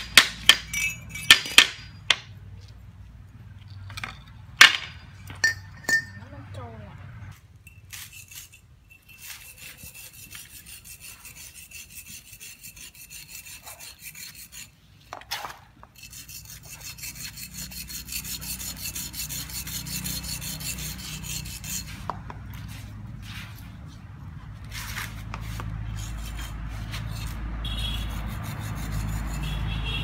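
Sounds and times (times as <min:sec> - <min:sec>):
metal rod rasping on sharpening stone: 0:07.7 - 0:14.7, 0:16.0 - 0:22.1, 0:26.0 - 0:29.8.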